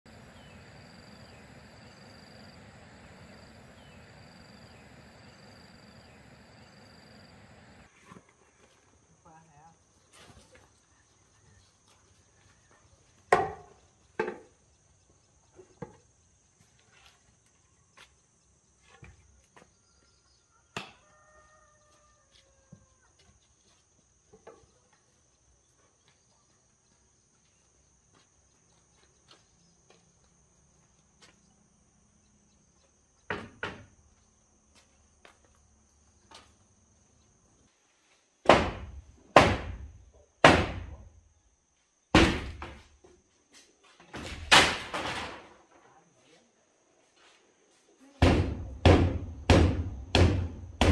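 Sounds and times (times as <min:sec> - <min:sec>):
high insect drone: 0:00.1 - 0:08.0
sharp knocks of building work: 0:13.3 - 0:14.6, 0:20.7 - 0:21.1, 0:33.3 - 0:34.0, 0:38.4 - 0:41.1, 0:42.1 - 0:43.1, 0:44.2 - 0:45.6, 0:48.2 - 0:50.9.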